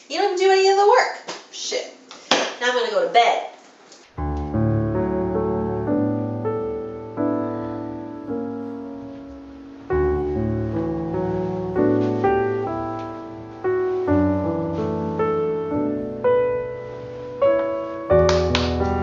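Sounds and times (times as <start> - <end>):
soft piano chords: 4.2 - 19.0.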